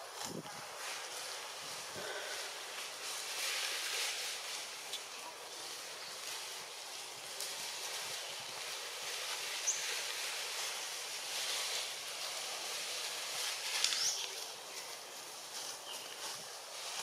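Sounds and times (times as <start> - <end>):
outdoor ambient hiss: 0.0 - 17.0.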